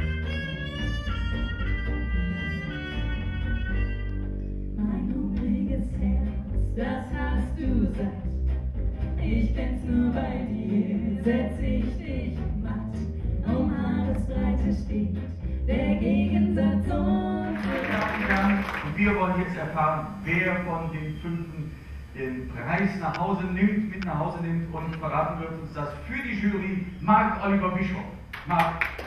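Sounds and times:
double bass: 0.0s - 28.0s
women singing together: 4.8s - 8.2s, 9.2s - 17.8s.

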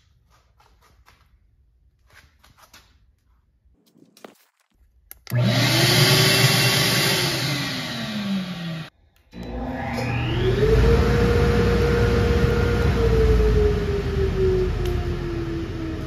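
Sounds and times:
shop vacuum motor whine: 5.3s - 16.0s.

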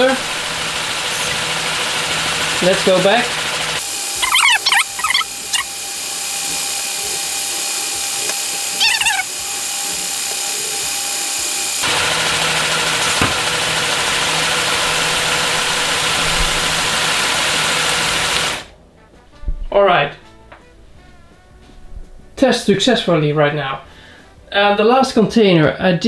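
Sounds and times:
toy crane high hissing whir: 0.0s - 18.7s.

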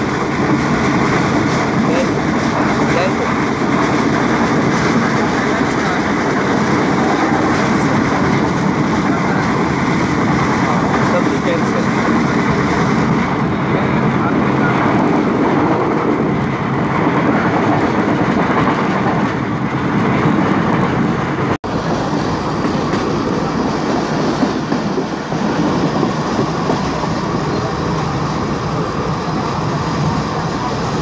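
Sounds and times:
train wheels rolling on rails: 0.0s - 31.0s.

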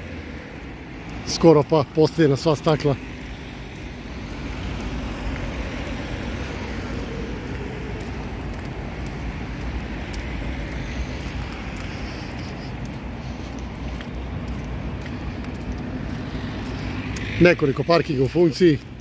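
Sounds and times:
cars driving by: 0.0s - 19.0s.

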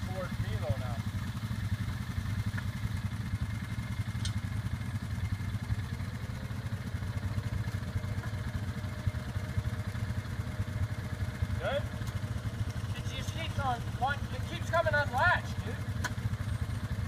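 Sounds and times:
atv engine idling: 0.0s - 17.0s.

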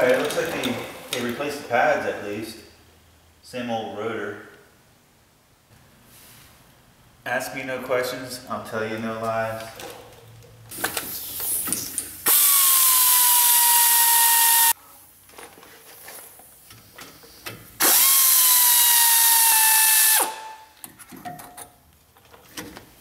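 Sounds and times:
air ratchet whining: 12.2s - 14.8s, 17.8s - 20.4s.

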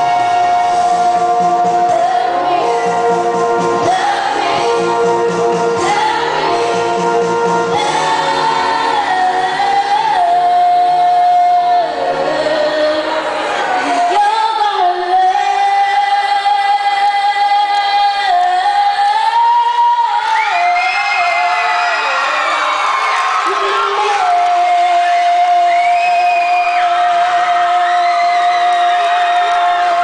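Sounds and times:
lower musical accompaniment: 0.0s - 21.0s
woman singing into microphone: 0.0s - 30.0s.

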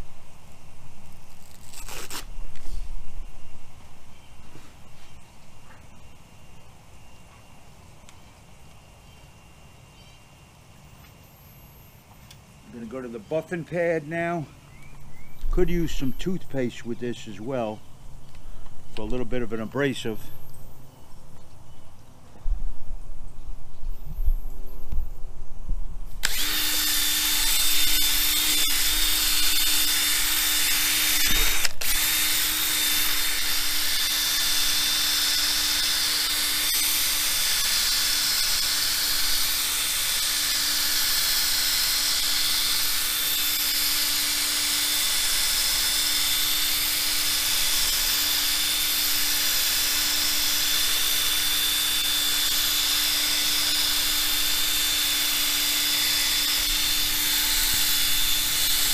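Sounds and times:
electric drill running: 26.1s - 58.9s.

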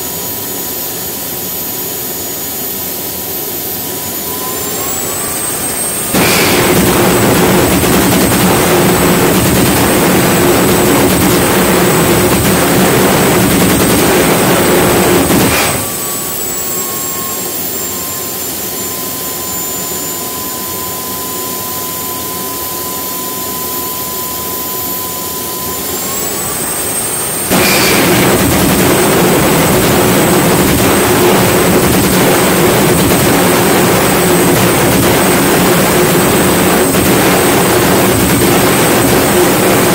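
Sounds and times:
jet engine turbine whine: 0.0s - 39.9s
afterburner roaring burn: 4.2s - 18.3s, 25.4s - 39.9s.

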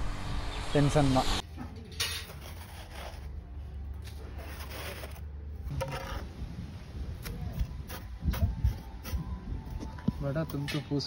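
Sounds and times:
trowel scraping sandy soil: 2.2s - 3.3s, 4.3s - 5.2s.

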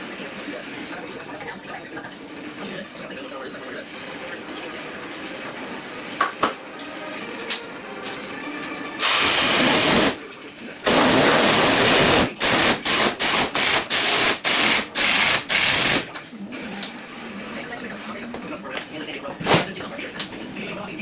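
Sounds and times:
cordless drill driving a screw: 9.0s - 10.1s, 10.9s - 16.0s.

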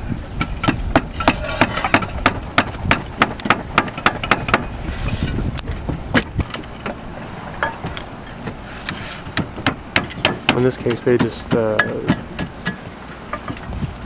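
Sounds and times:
hammer striking roof tile: 0.6s - 4.7s, 9.4s - 12.9s.

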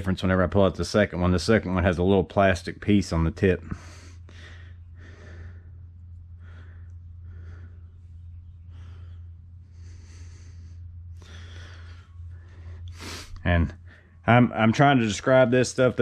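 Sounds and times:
low hum: 0.0s - 16.0s
person breathing heavily: 3.6s - 14.2s.

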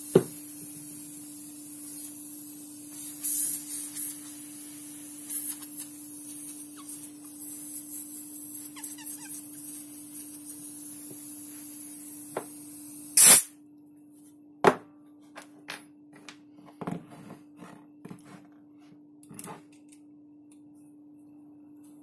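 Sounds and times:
gas hissing out: 0.0s - 13.6s
loud short gas burst: 13.1s - 13.5s.

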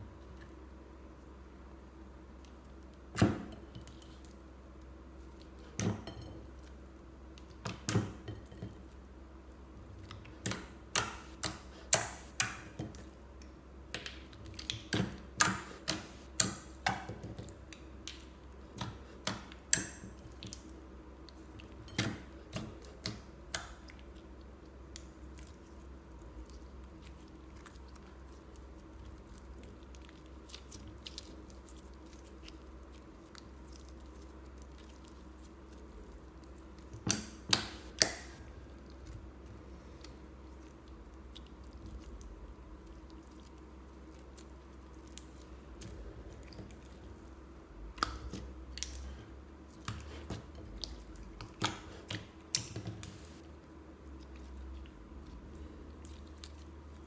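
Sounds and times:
low steady hum: 0.0s - 57.0s.

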